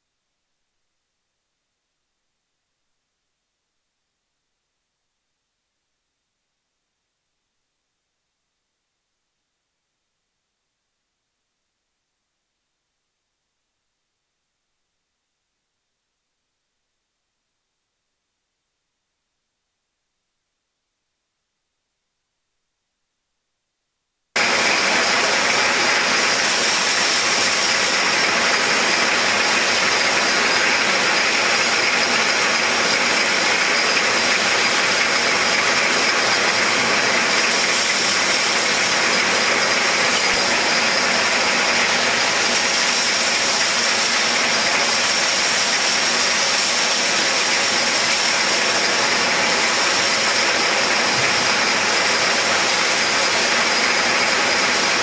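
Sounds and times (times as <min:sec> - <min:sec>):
bottle filling machine hissing: 0:24.4 - 0:55.0
high machine whine: 0:24.4 - 0:55.0.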